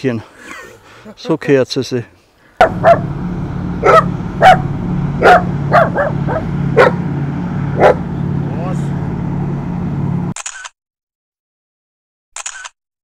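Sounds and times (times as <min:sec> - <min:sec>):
dog barking: 0:02.6 - 0:03.1, 0:03.8 - 0:07.0, 0:07.8 - 0:08.1
low engine-like drone: 0:02.6 - 0:10.4.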